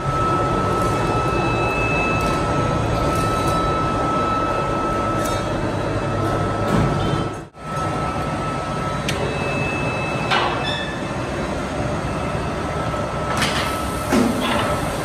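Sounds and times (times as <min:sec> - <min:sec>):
machine noise: 0:00.0 - 0:15.0.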